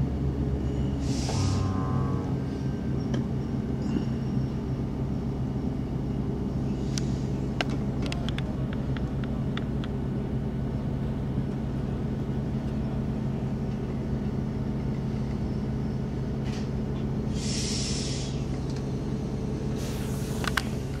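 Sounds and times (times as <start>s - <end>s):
train rumbling: 0.0s - 21.0s
short hiss: 17.4s - 18.4s.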